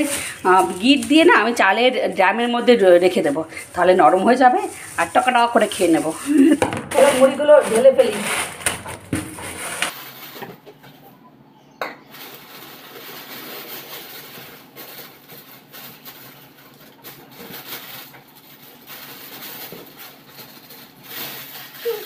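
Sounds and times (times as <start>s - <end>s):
rice grains shifting: 0.0s - 10.4s
plastic bag rustling: 0.0s - 10.7s, 12.1s - 22.0s.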